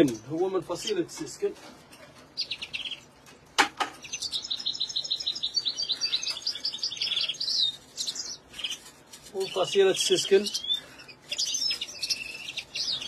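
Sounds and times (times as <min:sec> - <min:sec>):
songbird singing: 0:02.2 - 0:03.2, 0:03.8 - 0:13.0.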